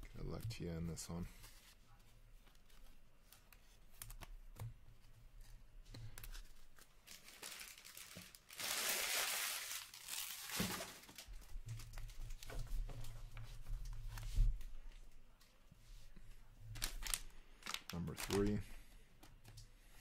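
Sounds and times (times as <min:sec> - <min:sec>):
foil wrapper crinkling and tearing: 0:07.0 - 0:11.3, 0:16.8 - 0:18.6.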